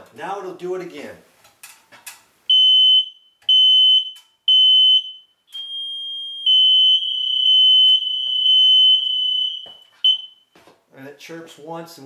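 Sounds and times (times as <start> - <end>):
smoke alarm beeping: 2.5 - 10.5
smoke alarm continuous tone: 2.5 - 10.6.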